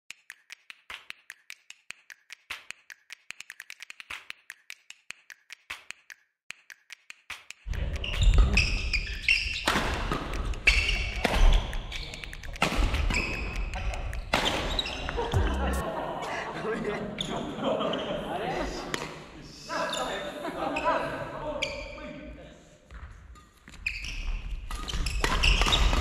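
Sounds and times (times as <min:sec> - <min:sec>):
racket striking shuttlecock: 0:07.3 - 0:15.5
sneakers squeaking: 0:07.7 - 0:15.8, 0:22.9 - 0:26.0.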